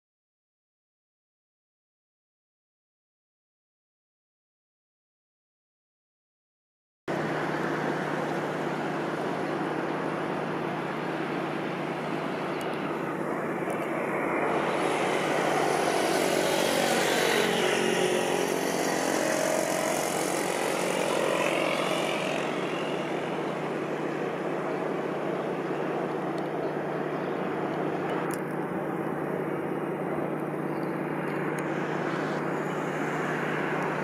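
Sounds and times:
engine drone: 7.1s - 34.0s.

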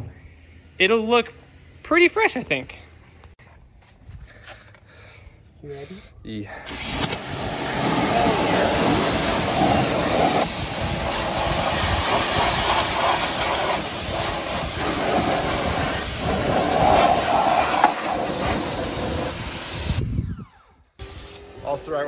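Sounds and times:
pressure washer spraying: 0.4s - 3.2s, 6.7s - 20.0s.

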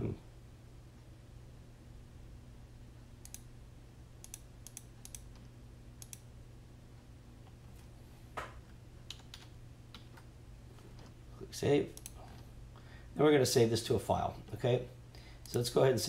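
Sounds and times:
faint low hum: 0.0s - 16.0s
mouse clicks: 3.2s - 3.5s, 4.2s - 6.2s, 12.0s - 12.2s.

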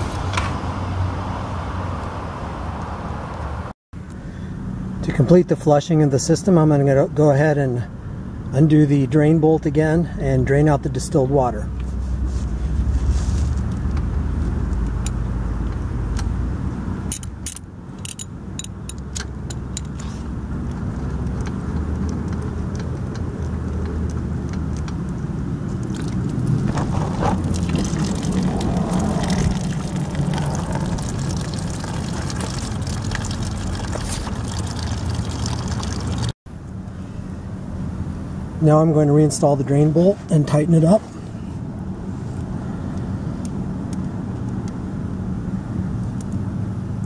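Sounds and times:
steady low rumble: 9.7s - 35.4s
metal tool clicks: 17.1s - 20.0s
water running from hose: 25.9s - 36.3s.

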